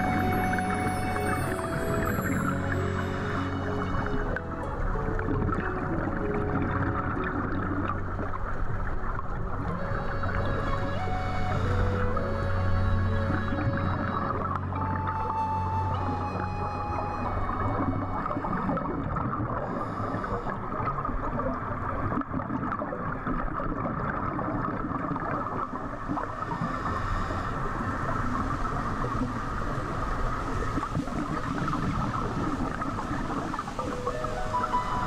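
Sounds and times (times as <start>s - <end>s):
scuba exhaust bubbles gurgling: 0.0s - 11.1s, 16.1s - 35.0s.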